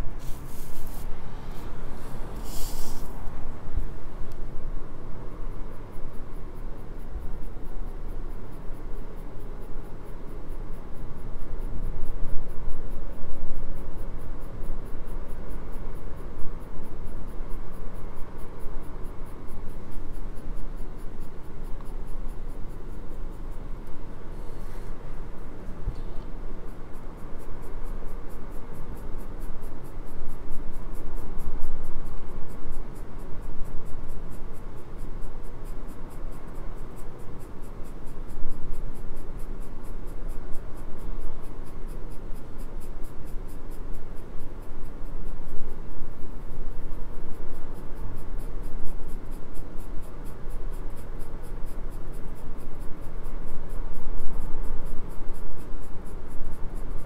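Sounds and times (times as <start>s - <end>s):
pencil scratching on paper: 0.1s - 3.2s.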